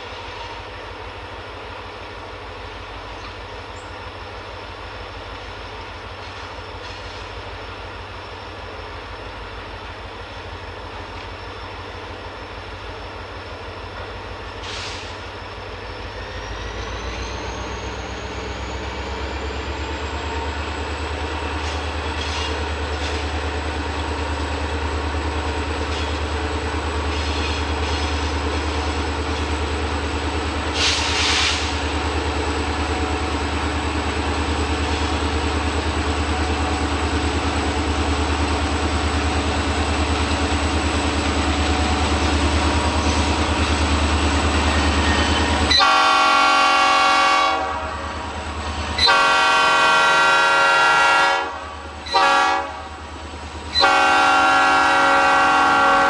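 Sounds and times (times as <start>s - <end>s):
diesel locomotive engine throbbing: 0.0s - 56.0s
thin high squeal: 45.0s - 45.6s.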